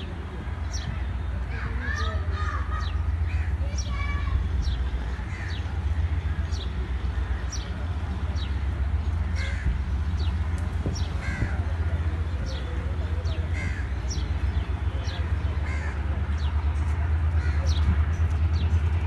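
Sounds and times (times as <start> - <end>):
crows cawing: 5.3 - 5.6, 9.3 - 9.8, 11.2 - 11.6, 13.5 - 14.0, 15.7 - 16.0, 17.4 - 17.7.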